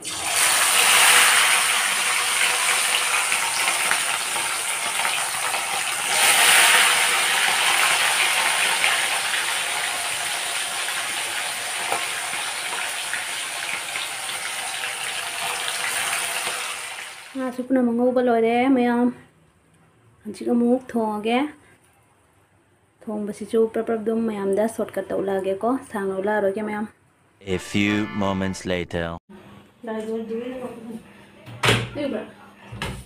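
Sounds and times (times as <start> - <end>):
fish sizzling in hot oil: 0.0 - 17.4.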